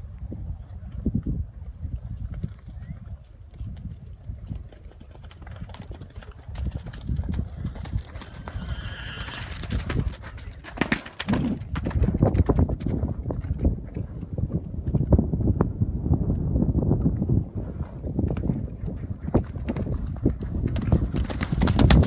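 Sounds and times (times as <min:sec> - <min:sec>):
horse hoofbeats on mud: 0:01.9 - 0:15.3, 0:17.8 - 0:22.0
horse whinny: 0:08.2 - 0:09.7.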